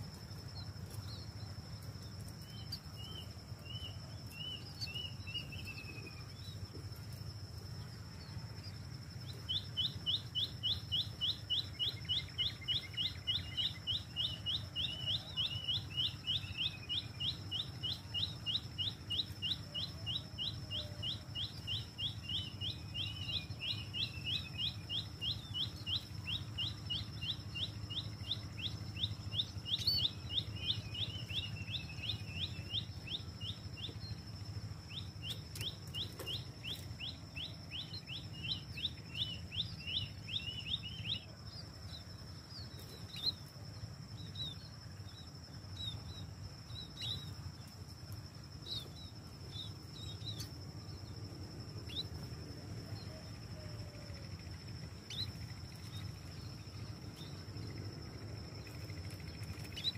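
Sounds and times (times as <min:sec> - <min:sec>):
small bird chirping: 0:00.0 - 0:59.9.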